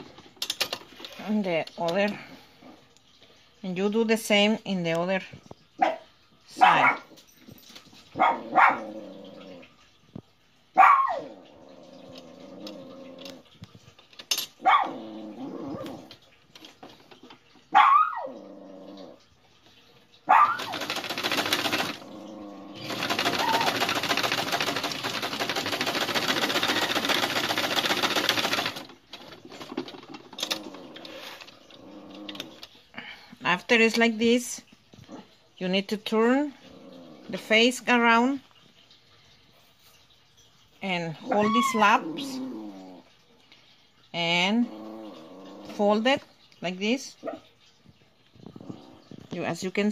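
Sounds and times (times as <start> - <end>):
dog barking: 5.8 - 7.1, 8.2 - 8.9, 10.8 - 11.3, 14.6 - 15.0, 17.7 - 18.3, 20.3 - 20.7
sewing machine stitching: 20.4 - 32.6.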